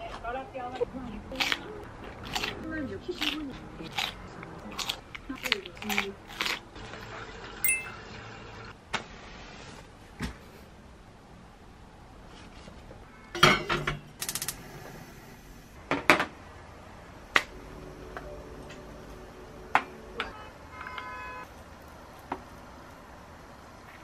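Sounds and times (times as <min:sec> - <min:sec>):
spoon and mug clinking: 0:07.6 - 0:08.1.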